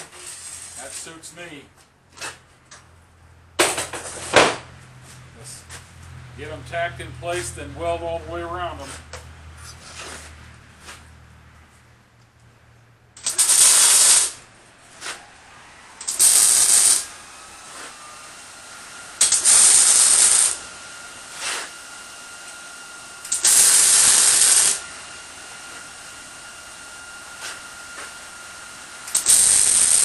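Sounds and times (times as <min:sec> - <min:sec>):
welder arc crackling and hissing: 0:00.0 - 0:01.6, 0:13.2 - 0:15.3, 0:16.0 - 0:30.0.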